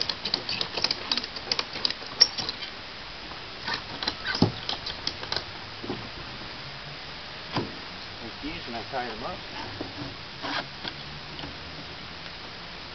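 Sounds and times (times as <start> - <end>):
strap buckles clicking and rasping: 0.0 - 2.7, 3.6 - 6.0.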